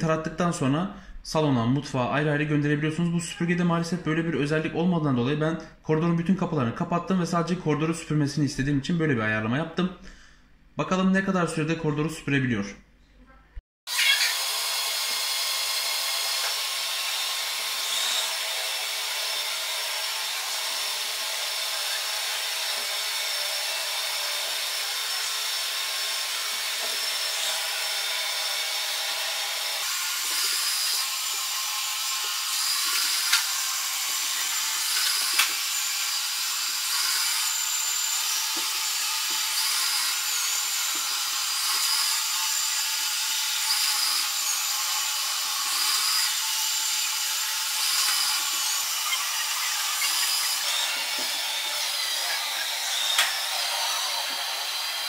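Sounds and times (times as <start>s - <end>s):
robot vacuum whirring: 13.9s - 20.8s, 28.8s - 44.5s, 45.4s - 55.0s.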